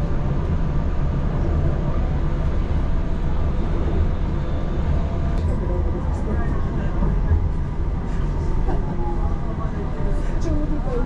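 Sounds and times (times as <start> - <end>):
tram wheels on rail: 0.0 - 11.0.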